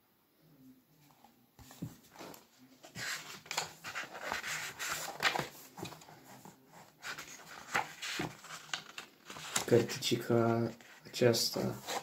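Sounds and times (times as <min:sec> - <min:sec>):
book pages being leafed through: 0:01.6 - 0:10.0, 0:10.8 - 0:12.0.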